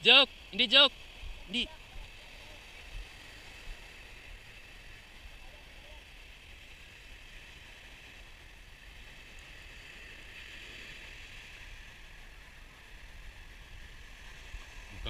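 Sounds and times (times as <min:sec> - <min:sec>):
surf washing on shore: 0:00.0 - 0:15.0
wind rumble on microphone: 0:01.1 - 0:15.0.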